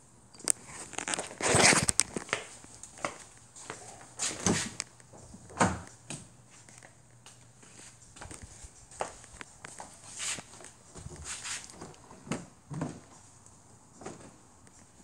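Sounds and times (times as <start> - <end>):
footsteps on concrete: 7.6 - 11.7.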